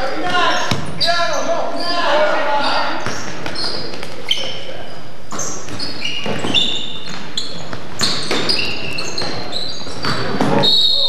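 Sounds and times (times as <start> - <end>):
sneakers squeaking on hardwood: 0.0 - 11.0
basketball bouncing: 3.0 - 4.1, 5.3 - 10.7.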